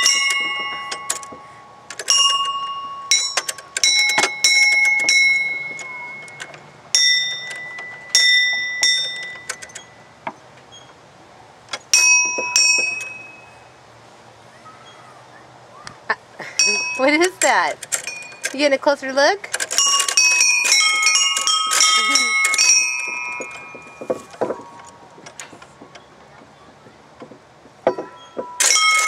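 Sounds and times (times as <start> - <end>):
metal tube chimes ringing: 0.0 - 10.2, 11.9 - 13.7, 16.4 - 18.8, 19.7 - 25.6, 27.8 - 29.0.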